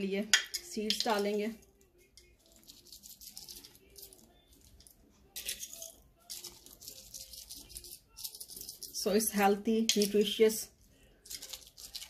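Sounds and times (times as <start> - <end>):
seeds rattling from a container: 2.4 - 9.0, 11.2 - 12.0.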